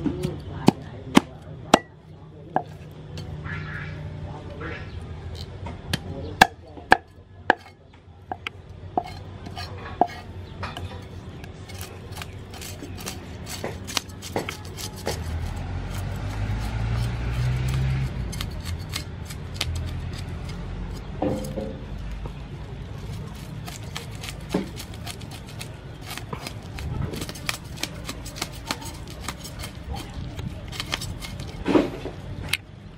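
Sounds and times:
cleaver scraping fish scales: 9.0 - 21.6, 22.6 - 32.6.

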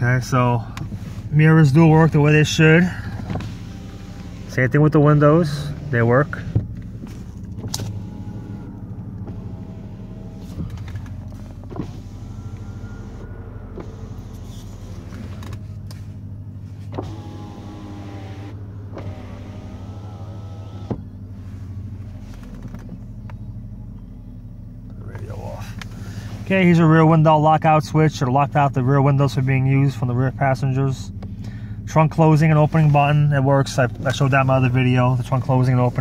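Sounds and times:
steady low hum: 0.0 - 36.0
electric window motor whine: 3.1 - 23.3.

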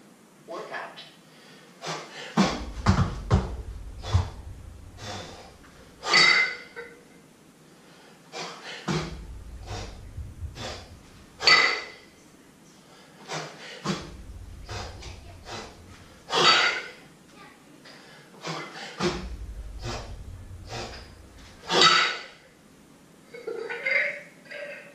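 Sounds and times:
low rumble: 2.4 - 6.2, 8.9 - 12.1, 13.9 - 16.7, 19.0 - 22.0.

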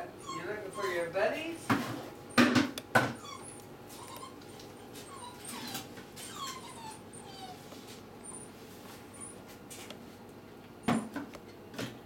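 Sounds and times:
dog whining and whimpering: 0.0 - 1.1, 3.0 - 9.5.

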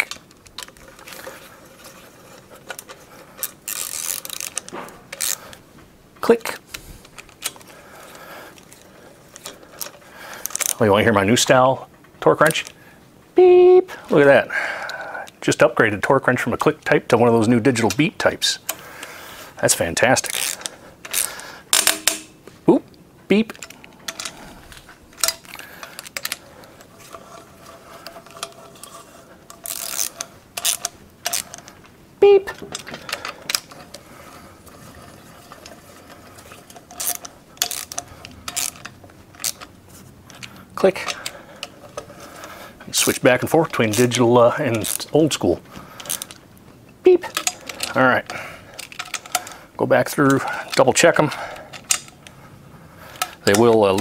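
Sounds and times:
hand ratchet clicking: 2.7 - 5.6, 20.2 - 22.4, 25.2 - 31.8, 32.6 - 39.7, 45.9 - 46.4
steel tools clinking: 20.0 - 22.4, 23.5 - 31.8, 32.5 - 46.4, 47.2 - 52.3
torque wrench ratchet clicks: 29.6 - 31.6, 36.9 - 39.6.

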